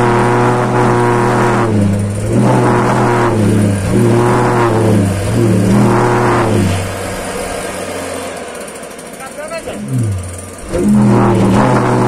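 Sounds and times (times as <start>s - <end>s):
pulse jet engine droning: 0.0s - 12.0s.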